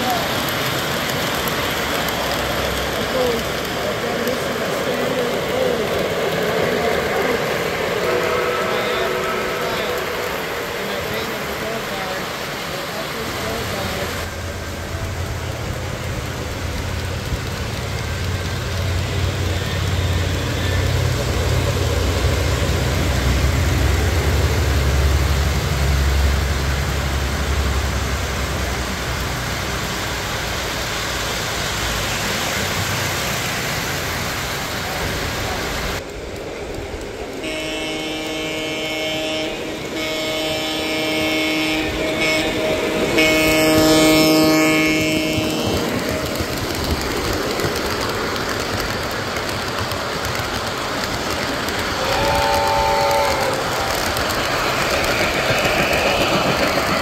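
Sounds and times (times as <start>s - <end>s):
model train wheels rumbling: 0.0s - 57.0s
electronic train horn blasts: 7.9s - 10.7s, 37.4s - 46.0s, 52.1s - 54.0s.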